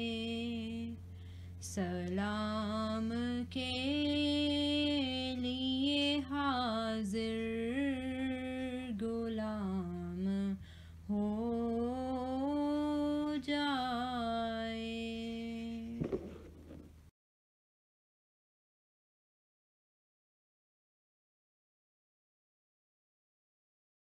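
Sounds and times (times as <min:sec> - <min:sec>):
steady low drone: 0:00.0 - 0:17.1.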